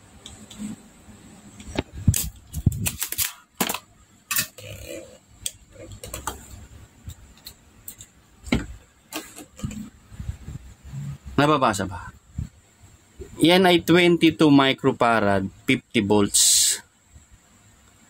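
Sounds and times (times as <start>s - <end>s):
desoldering pump clicks and snaps: 1.6s - 4.6s.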